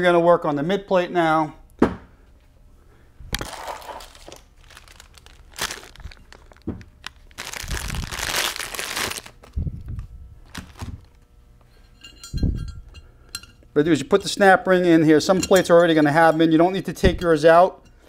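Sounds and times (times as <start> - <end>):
plastic bag crinkling: 3.3 - 11.2
faint small metallic ringing: 11.7 - 13.6.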